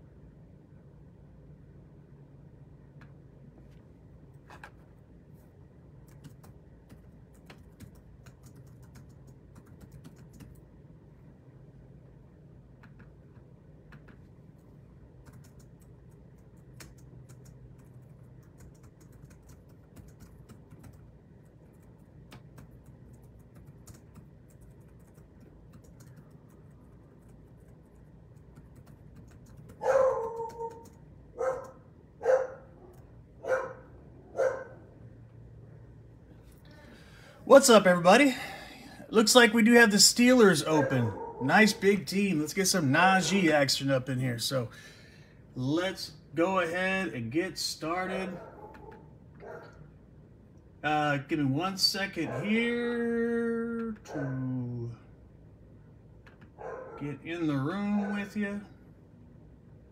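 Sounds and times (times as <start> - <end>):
low steady room hum: 0.0 - 59.9
dog barking: 29.8 - 34.9, 40.7 - 41.6, 48.3 - 49.8, 52.2 - 52.6, 54.1 - 54.4, 56.6 - 57.0, 58.0 - 58.3.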